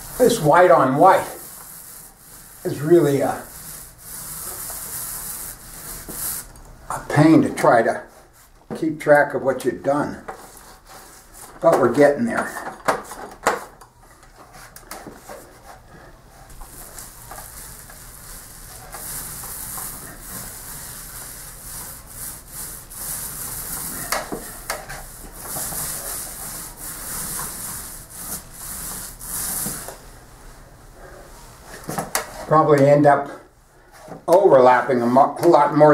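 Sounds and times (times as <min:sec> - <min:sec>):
paint roller rasping: 0:00.0 - 0:06.5, 0:16.4 - 0:30.0.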